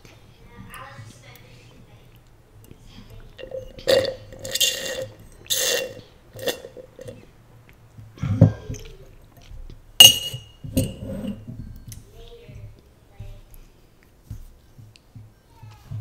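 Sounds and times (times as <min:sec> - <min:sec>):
slurping through a straw: 0:03.2 - 0:07.2
metal straw clinking on glass: 0:03.4 - 0:07.2, 0:10.0 - 0:11.4.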